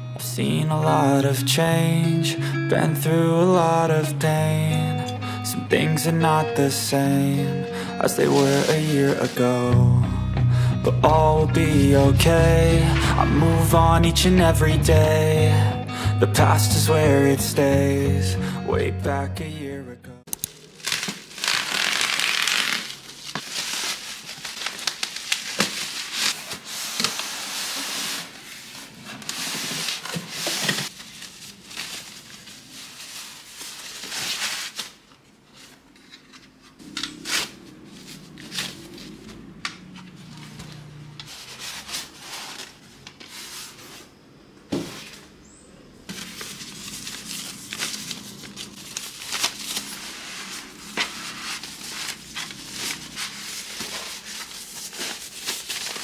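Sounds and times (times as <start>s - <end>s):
plastic and styrofoam rustling: 8.0s - 9.8s, 20.5s - 45.4s, 46.0s - 56.0s
scissors cutting bubble wrap: 8.2s - 9.5s, 20.3s - 35.1s, 36.5s - 39.4s, 46.3s - 56.0s.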